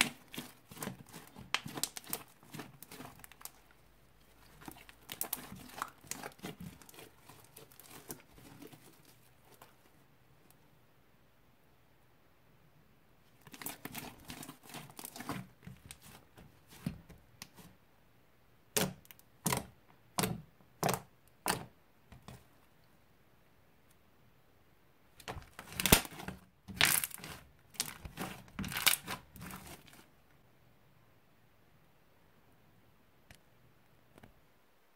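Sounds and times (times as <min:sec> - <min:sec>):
slime popping: 0:00.0 - 0:09.7, 0:25.2 - 0:30.0
slime crackling and squelching: 0:00.0 - 0:10.0, 0:13.4 - 0:17.8, 0:25.2 - 0:30.1.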